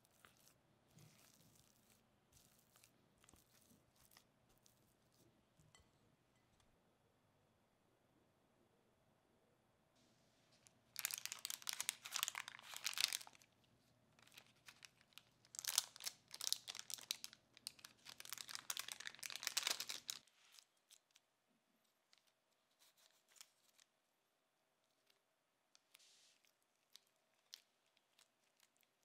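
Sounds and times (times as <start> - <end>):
parchment paper crinkling: 0.0 - 5.3, 10.6 - 13.6, 14.2 - 21.2, 21.8 - 24.0, 24.8 - 29.0.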